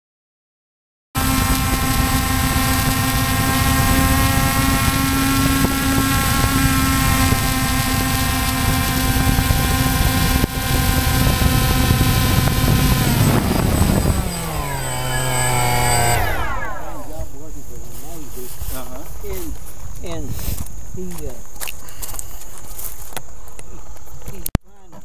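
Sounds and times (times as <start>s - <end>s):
wind on microphone: 1.2s - 17.5s
drone propellers whining: 1.2s - 18.0s.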